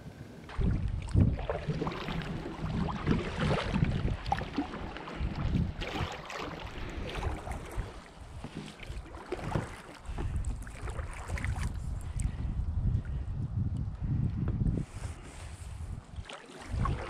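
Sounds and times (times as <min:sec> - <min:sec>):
paddle strokes splashing: 0:00.5 - 0:12.4, 0:14.8 - 0:17.0
wind rumble on microphone: 0:00.5 - 0:17.0.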